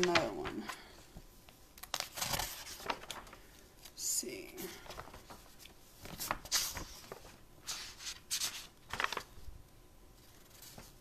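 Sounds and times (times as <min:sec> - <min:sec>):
packaging rustling and crinkling: 0:01.8 - 0:04.0, 0:08.4 - 0:09.5.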